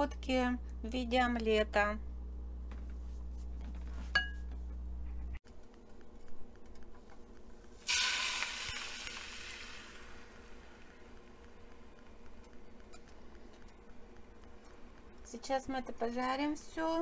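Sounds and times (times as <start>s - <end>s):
glass clink: 4.2s - 4.5s
mixture sizzling in hot pan: 7.6s - 13.1s.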